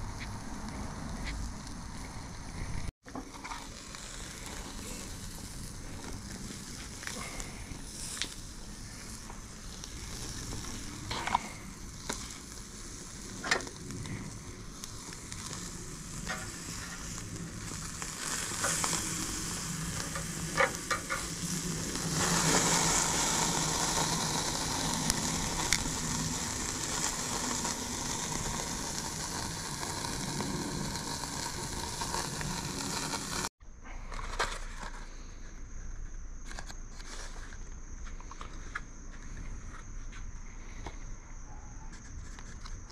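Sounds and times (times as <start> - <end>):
crabs sizzling on a grill: 0.6 - 33.5.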